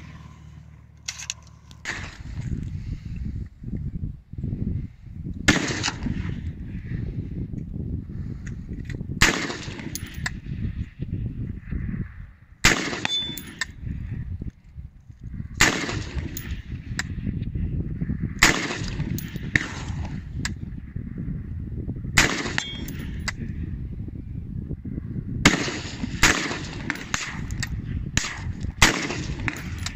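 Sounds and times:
rifle gunshots: 1.8s - 2.4s, 5.5s - 6.3s, 9.2s - 10.2s, 12.6s - 13.6s, 15.6s - 16.6s, 18.4s - 20.1s, 22.2s - 23.2s, 25.4s - 27.5s, 28.2s - 29.9s.

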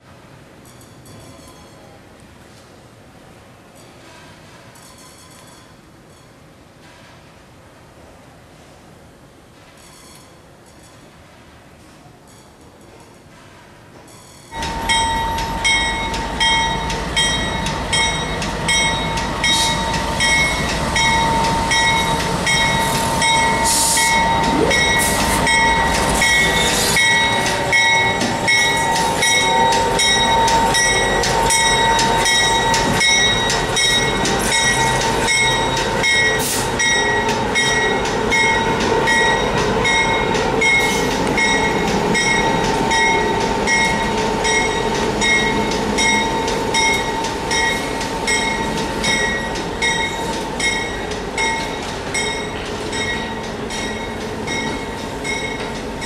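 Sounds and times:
diesel locomotive engine: 14.5s - 56.0s
high whine: 14.6s - 52.3s.

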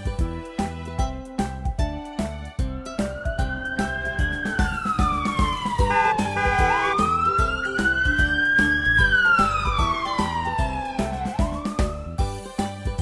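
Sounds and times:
children's music with steady beat: 0.0s - 13.0s
electronic siren wailing: 3.3s - 12.1s.

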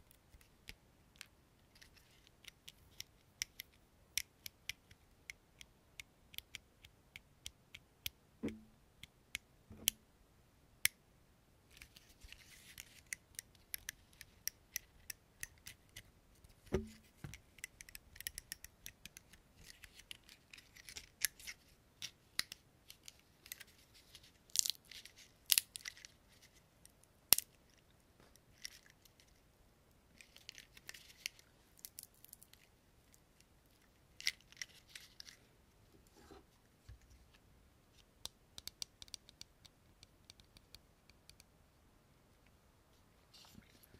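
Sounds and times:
fingers tapping small objects: 38.2s - 41.5s.

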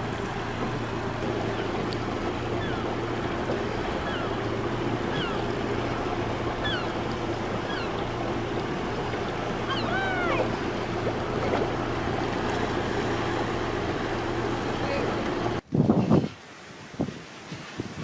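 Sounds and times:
boat engine humming: 0.0s - 15.6s
water noise: 0.0s - 18.0s
wind: 0.0s - 18.0s
short falling bird calls: 2.4s - 5.6s, 6.5s - 8.1s, 9.6s - 10.6s
longer fuller bird call: 4.0s - 4.5s, 5.1s - 5.6s, 6.6s - 7.0s, 7.6s - 8.0s, 9.6s - 10.5s.

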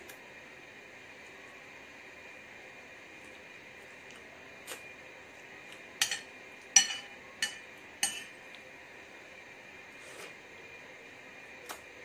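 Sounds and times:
metal spoon clinking on ceramic plate: 6.0s - 8.3s.

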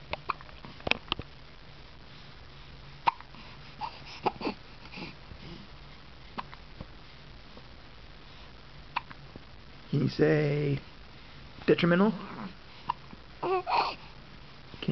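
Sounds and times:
baby hiccuping: 3.0s - 3.3s
soft baby vocal sounds: 3.0s - 5.7s, 12.0s - 14.2s.

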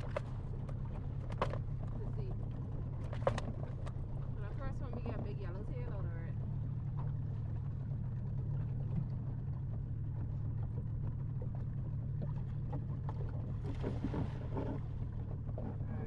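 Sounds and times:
boat motor idling: 0.0s - 16.0s
splash into water: 13.2s - 14.9s.

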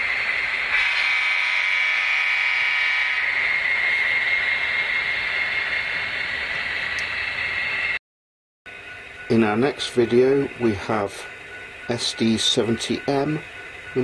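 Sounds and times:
wheels on rails: 2.2s - 8.0s, 8.7s - 14.0s.

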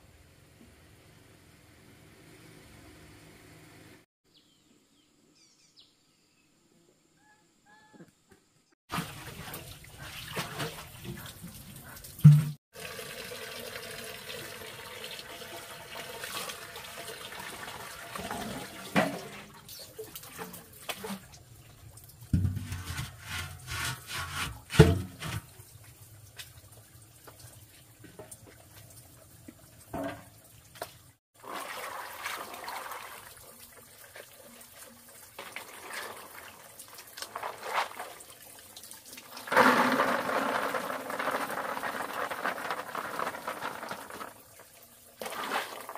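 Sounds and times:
water running and splashing: 8.9s - 23.0s, 25.2s - 45.9s
knocks and thuds: 12.3s - 12.6s, 22.4s - 23.0s.

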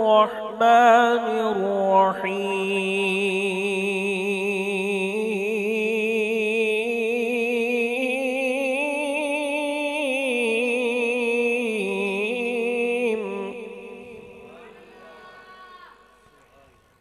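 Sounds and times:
man chanting into a microphone: 0.0s - 15.2s.

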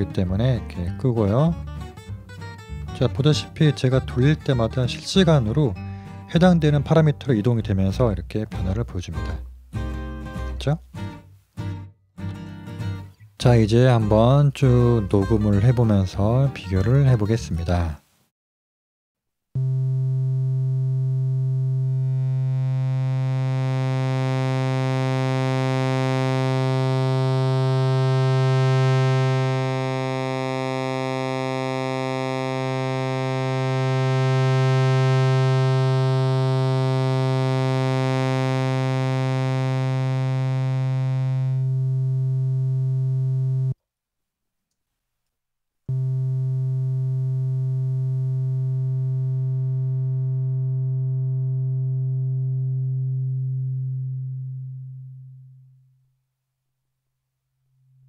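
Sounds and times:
synthesizer held low note: 19.6s - 43.8s, 45.9s - 55.8s.

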